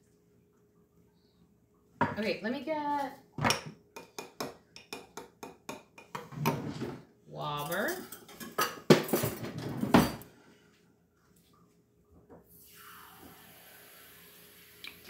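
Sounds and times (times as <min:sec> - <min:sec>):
metal utensils clattering in drawer: 0:07.6 - 0:10.2
faint steady hiss: 0:10.3 - 0:15.0.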